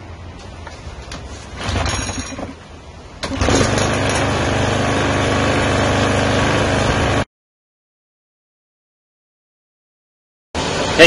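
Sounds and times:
lawn mower engine running: 3.2 - 7.3.

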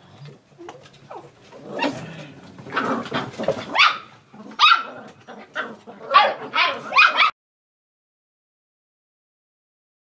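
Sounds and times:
puppies yapping: 2.6 - 7.4.

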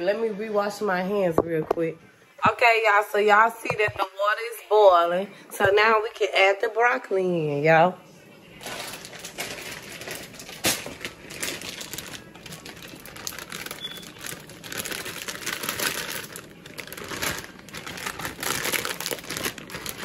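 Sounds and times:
plastic packaging crinkling: 8.6 - 20.0.

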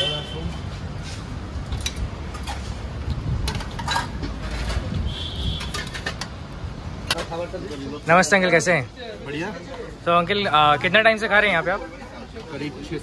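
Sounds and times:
low traffic rumble: 0.0 - 13.0
dishes and cutlery clinking: 3.5 - 4.9.

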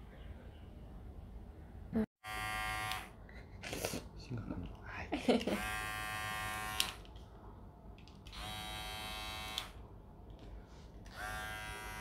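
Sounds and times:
electric hair clipper buzzing: 2.2 - 3.1, 5.4 - 7.0, 8.3 - 9.8, 11.1 - 12.0.

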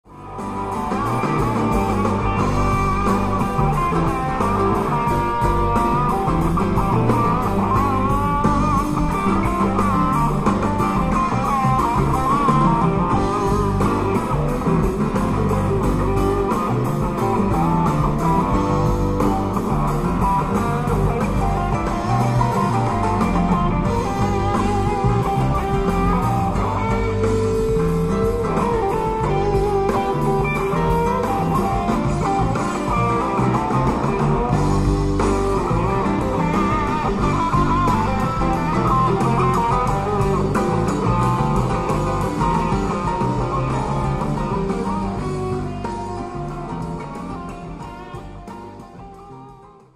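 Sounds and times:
blues rock music: 0.0 - 49.9.

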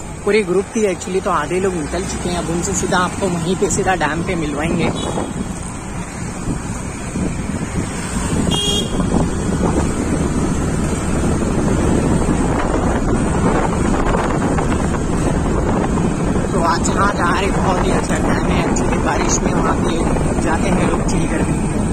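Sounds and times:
motorbike engine and tyre noise: 0.0 - 21.9
wind buffeting the microphone: 1.6 - 21.9
vehicle horn toot: 4.9 - 5.4, 8.4 - 9.2.

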